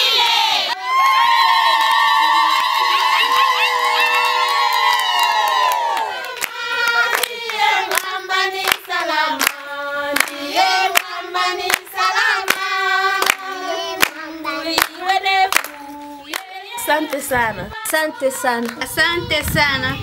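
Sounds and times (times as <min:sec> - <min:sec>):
group of voices singing: 0:00.0 - 0:00.8, 0:03.3 - 0:20.0
high cheer: 0:00.0 - 0:07.3
hand claps: 0:02.5 - 0:17.3.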